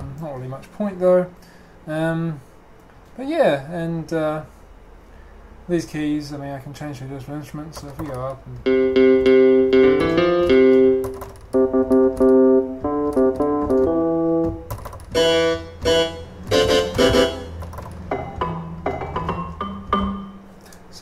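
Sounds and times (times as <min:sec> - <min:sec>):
synth piano notes: 0:08.6 - 0:20.6.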